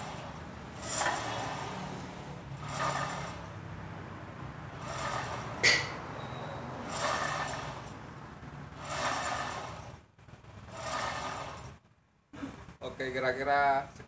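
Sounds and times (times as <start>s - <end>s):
gear teeth meshing whir: 0.0s - 3.7s, 4.7s - 8.0s, 8.6s - 10.0s, 10.6s - 11.8s.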